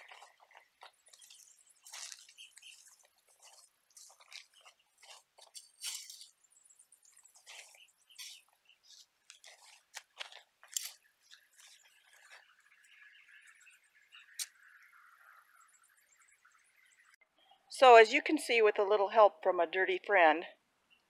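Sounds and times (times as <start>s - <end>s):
shovel scraping soil: 4.0s - 6.4s, 7.4s - 12.4s.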